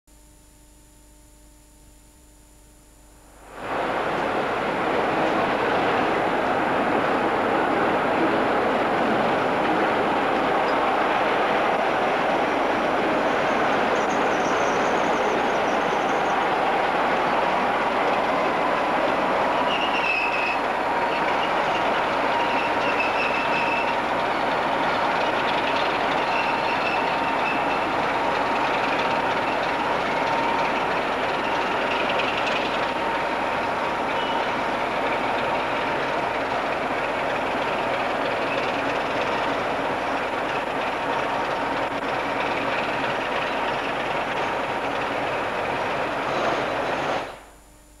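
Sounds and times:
diesel locomotive engines running: 3.3s - 47.7s
high wheel squeal: 12.3s - 39.6s.

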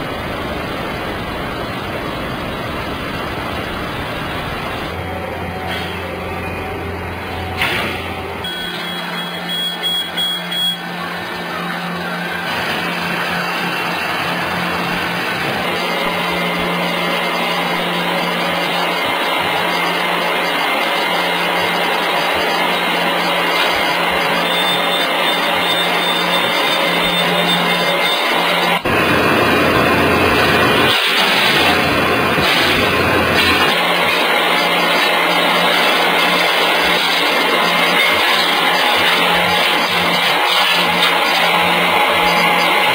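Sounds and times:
industrial machinery humming: 0.0s - 42.9s
louder machine deep hum: 0.0s - 42.9s.

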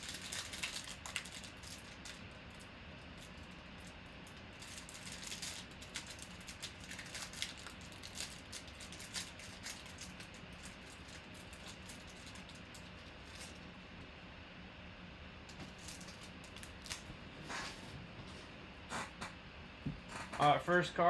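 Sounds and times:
plastic wrapper crinkling and tearing: 0.0s - 13.6s, 15.5s - 17.1s.

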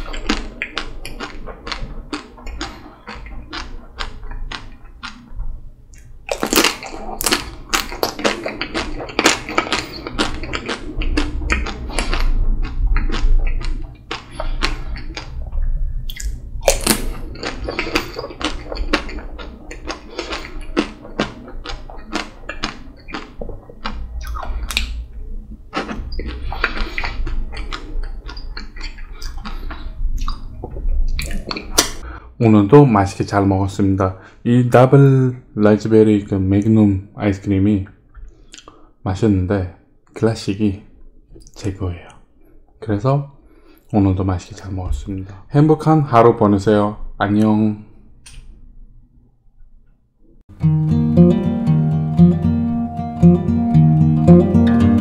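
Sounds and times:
biting and chewing clicks: 0.0s - 25.0s, 25.7s - 32.0s
wet mouth sounds: 0.0s - 32.0s, 38.4s - 38.8s
chocolate shell crunching: 6.0s - 15.2s.

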